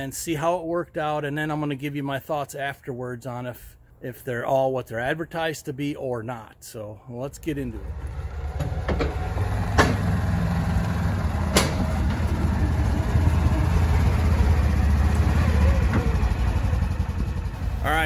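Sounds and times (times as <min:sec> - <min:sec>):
engine running at low speed: 0:07.7 - 0:18.0
sharp knocks: 0:08.5 - 0:10.3, 0:11.4 - 0:12.4.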